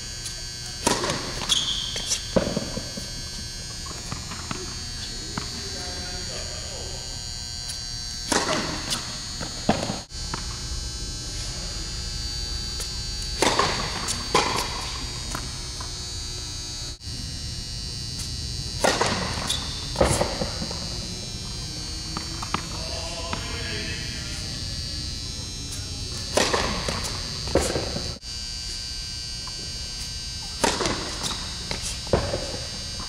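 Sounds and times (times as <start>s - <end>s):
high electrical buzz: 0.0s - 33.0s
tennis balls struck by rackets: 0.8s - 3.2s, 3.8s - 5.9s, 8.3s - 10.5s, 13.3s - 15.9s, 18.8s - 21.6s, 22.2s - 24.0s, 25.7s - 28.2s, 30.5s - 32.7s.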